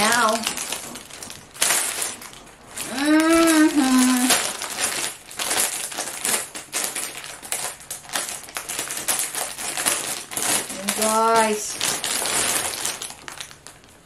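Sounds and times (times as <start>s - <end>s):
plastic bag crinkling: 0.0s - 14.0s
person humming: 2.8s - 4.4s.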